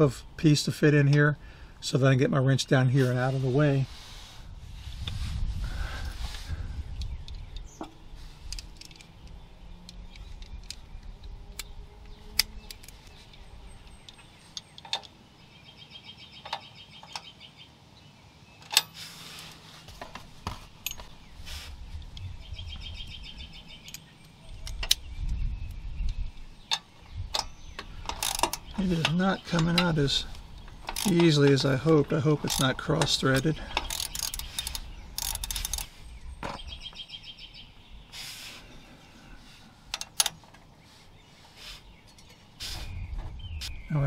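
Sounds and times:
wrench clicks and knocks: 26.7 - 30.0, 30.8 - 31.4, 32.5 - 35.9.

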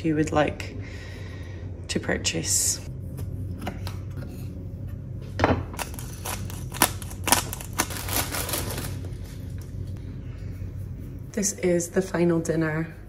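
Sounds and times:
plastic bag crinkling: 5.8 - 9.6.

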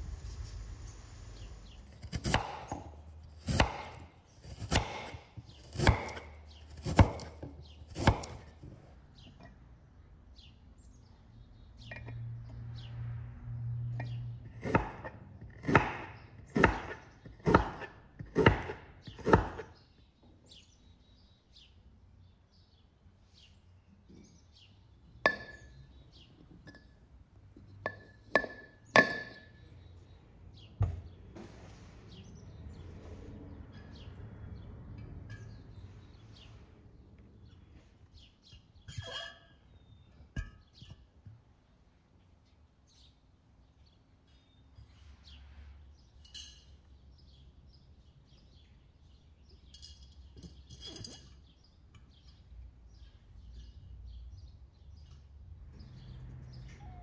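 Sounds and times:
knife chopping on wooden board: 2.0 - 8.6, 14.6 - 19.7
glass clinks: 46.2 - 46.8, 49.7 - 51.4.

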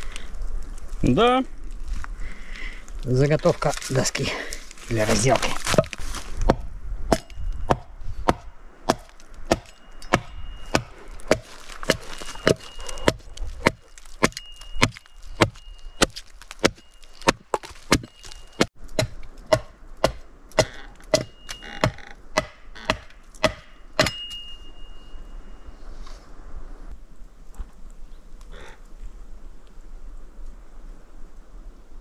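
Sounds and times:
axe chopping wood: 5.6 - 24.3.

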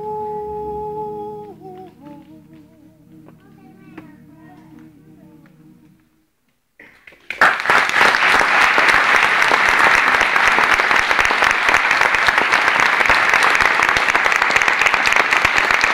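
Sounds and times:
audience clapping: 6.8 - 15.9.

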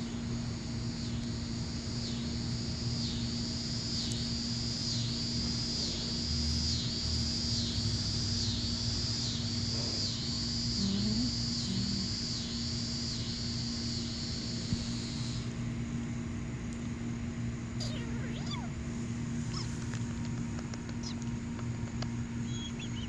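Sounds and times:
low hum and rumble: 0.0 - 23.0
insect buzzing: 0.9 - 15.6, 17.7 - 20.2.

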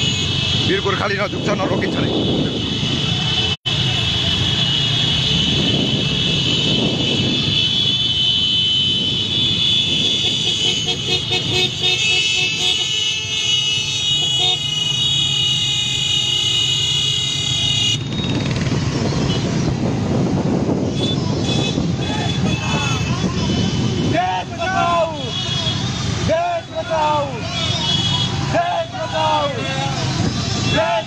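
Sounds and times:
vehicle horns honking: 0.0 - 19.7, 20.8 - 31.0
wind on microphone: 5.3 - 7.8, 18.0 - 24.2
motorcycle engines running: 17.6 - 24.1.

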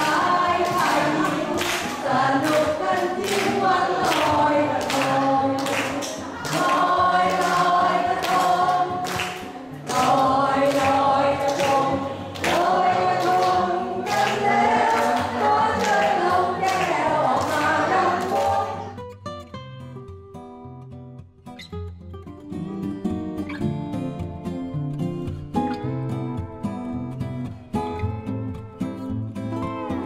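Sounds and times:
hand clapping in steady beat: 0.0 - 18.9
group singing through loudspeakers: 0.0 - 19.0.

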